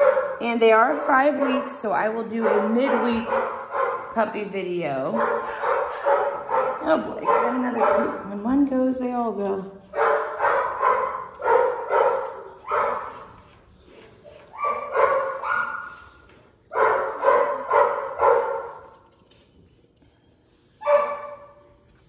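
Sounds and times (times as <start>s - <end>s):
dog barking: 0.0s - 0.4s, 2.4s - 4.2s, 5.1s - 8.2s, 10.0s - 13.2s, 14.6s - 16.0s, 16.7s - 18.8s, 20.8s - 21.6s.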